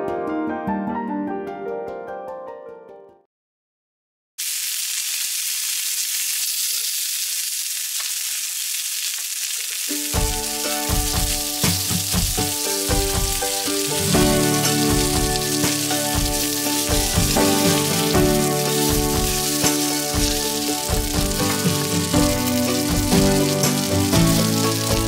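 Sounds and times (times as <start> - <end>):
background piano music: 0.0 - 3.3, 9.9 - 25.0
dough sizzling in a skillet: 4.4 - 25.0.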